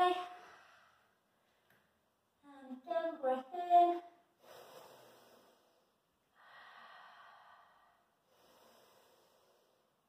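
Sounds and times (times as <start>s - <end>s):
woman breathing slowly: 0.3s - 1.8s, 4.3s - 10.0s.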